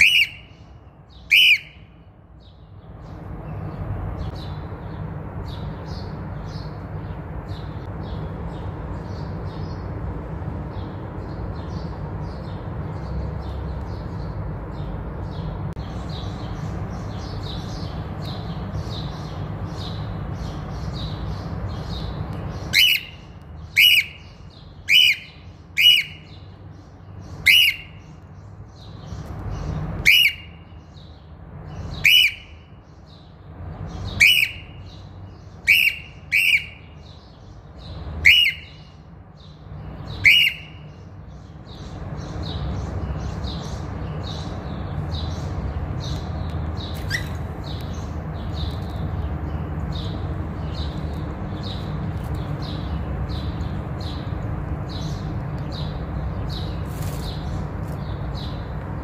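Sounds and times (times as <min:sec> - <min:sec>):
cockatiel shrill calls: 0:00.0 - 0:00.5, 0:01.3 - 0:01.8, 0:22.7 - 0:23.1, 0:34.2 - 0:34.6, 0:35.6 - 0:36.8, 0:38.2 - 0:38.8, 0:40.2 - 0:40.8
soft bird chirps: 0:00.0 - 0:59.0.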